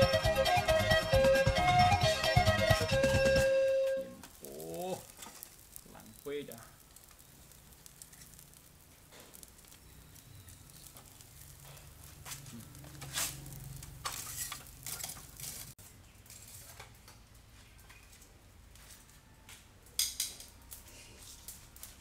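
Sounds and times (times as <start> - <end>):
faint sizzle: 3.6 - 22.0
metal tongs scraping grill grate: 5.0 - 6.2, 6.9 - 9.8, 10.7 - 17.0.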